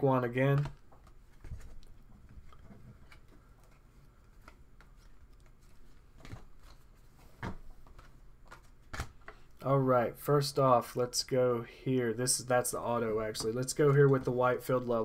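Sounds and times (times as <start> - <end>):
trading cards rustling: 0.3 - 9.6.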